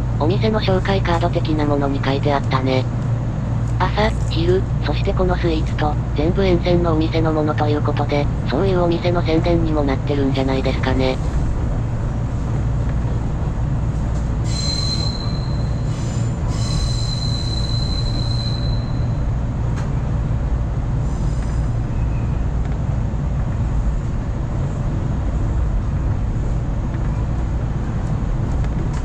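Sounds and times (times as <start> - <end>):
train wheels rumbling on rails: 0.0 - 29.0
high wheel squeal: 14.4 - 19.2.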